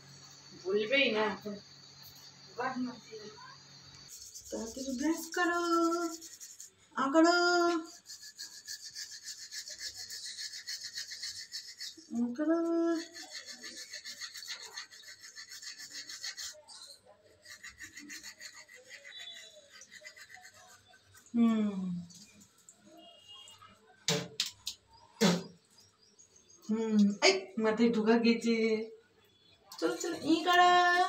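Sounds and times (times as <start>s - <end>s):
toothbrush scrubbing teeth: 4.1s - 21.4s.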